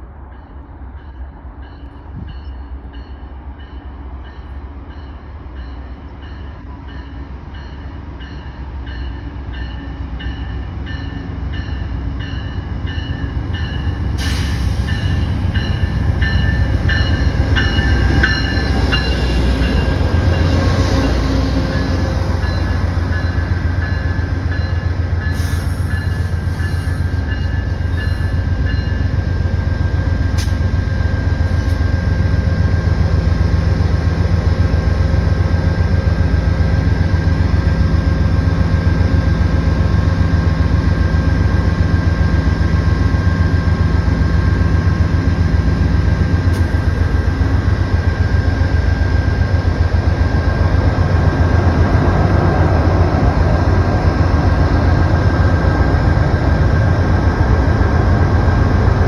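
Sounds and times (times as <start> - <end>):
diesel locomotive engine rumble: 0.0 - 59.0
train cars rolling past: 0.0 - 59.0
locomotive bell ringing: 0.3 - 32.3.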